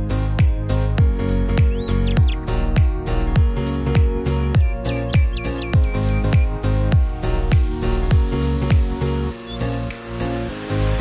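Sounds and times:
kick drum beat: 0.4s - 8.9s.

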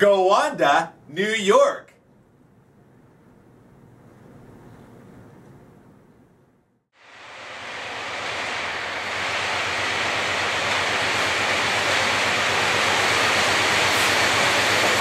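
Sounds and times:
diesel locomotive approaching: 7.0s - 15.0s.

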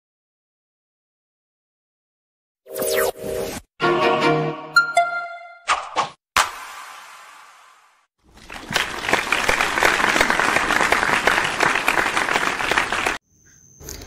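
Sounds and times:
hands clapping: 8.3s - 13.2s.

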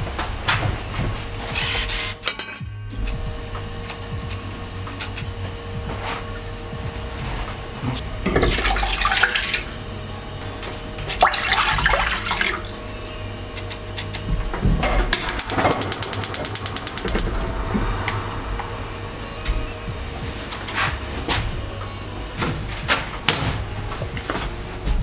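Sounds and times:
water splashing into a pan: 8.3s - 9.9s, 11.1s - 12.8s
gas stove igniter clicking: 15.1s - 17.4s.

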